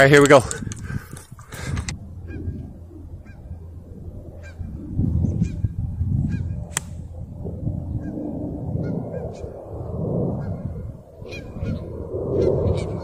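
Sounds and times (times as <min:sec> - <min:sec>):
wind rumble on microphone: 0:00.0 - 0:13.0
golf club striking ball: 0:06.7 - 0:07.1.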